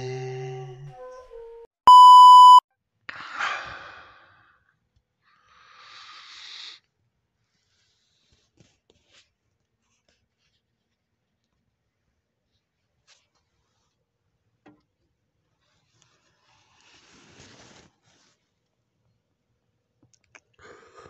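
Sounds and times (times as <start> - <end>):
person breathing heavily: 3.1 - 4.6.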